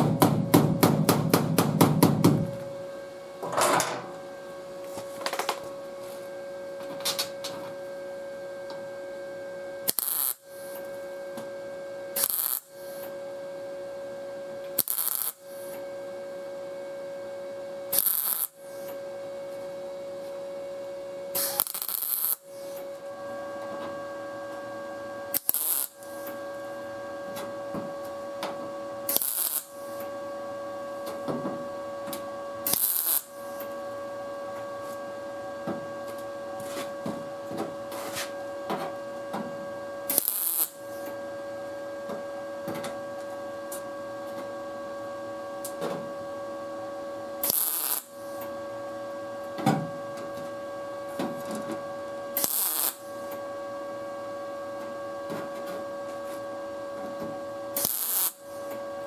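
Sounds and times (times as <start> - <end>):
steady hum: 0.0 - 59.0
welding arc bursts: 9.9 - 10.8, 12.2 - 13.0, 14.8 - 15.7, 17.9 - 18.6, 21.4 - 22.8, 25.3 - 26.2, 29.1 - 30.0, 32.7 - 33.6, 40.1 - 40.8, 47.4 - 48.2, 52.4 - 53.1, 57.8 - 58.5.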